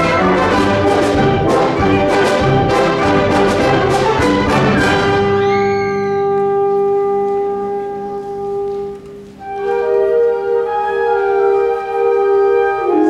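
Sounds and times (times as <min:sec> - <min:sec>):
percussion strikes: 0:00.0 - 0:07.7
symphonic band playing: 0:00.0 - 0:13.0.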